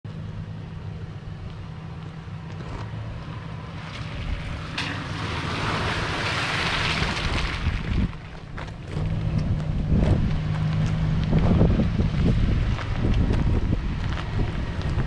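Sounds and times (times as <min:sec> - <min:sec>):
engine running at low revs: 0:00.1 - 0:15.0.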